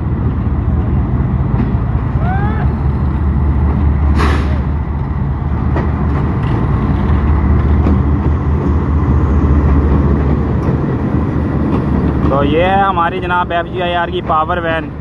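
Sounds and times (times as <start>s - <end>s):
locomotive diesel engine rumble: 0.0s - 15.0s
short hiss: 4.2s - 4.7s.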